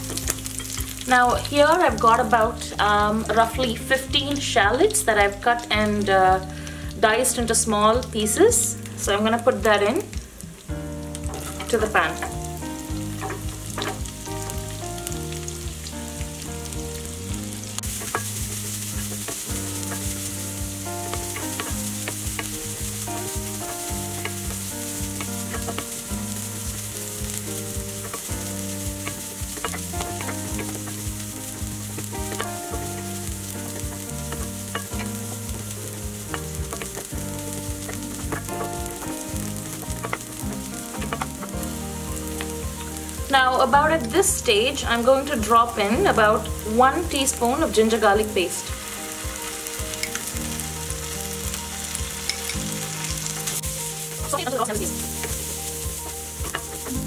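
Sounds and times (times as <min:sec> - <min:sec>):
shallots sizzling in oil: 0:00.0 - 0:57.0
stirring taps and scrapes: 0:10.1 - 0:43.3, 0:48.6 - 0:57.0.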